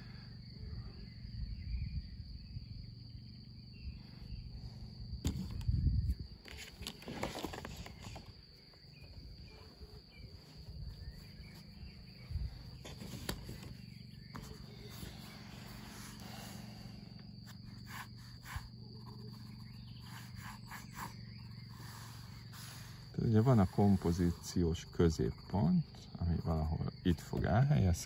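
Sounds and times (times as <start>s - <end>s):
insects trilling: 0.0s - 28.0s
pencil scratching on paper: 17.5s - 24.4s.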